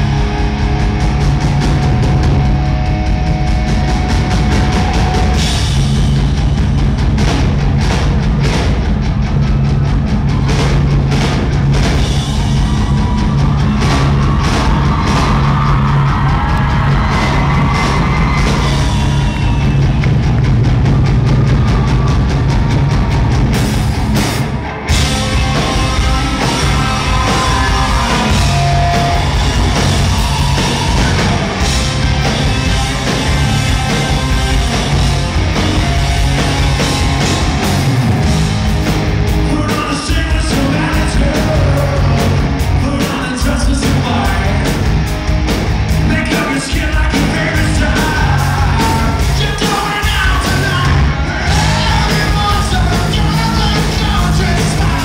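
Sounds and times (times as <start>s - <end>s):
drums: 0.0s - 55.0s
man singing lead vocal: 25.4s - 29.2s, 39.4s - 44.8s, 46.1s - 55.0s.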